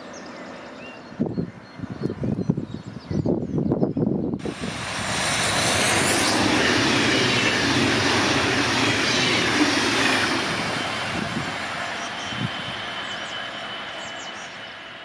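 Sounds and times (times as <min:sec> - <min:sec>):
train wheels rushing on rails: 0:04.4 - 0:15.0
faint gliding whine: 0:04.8 - 0:15.0.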